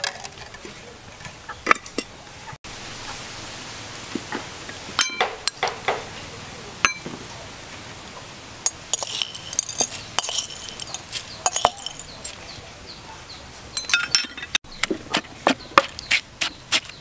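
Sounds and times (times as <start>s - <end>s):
metal spoon clinking on mortar: 5.0s - 5.7s, 6.8s - 7.1s, 8.7s - 12.4s, 13.8s - 14.6s
spoon scraping: 8.7s - 12.4s.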